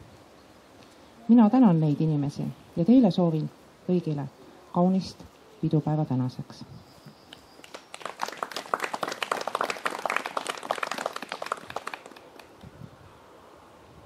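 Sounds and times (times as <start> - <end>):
audience applauding: 7.6 - 12.6.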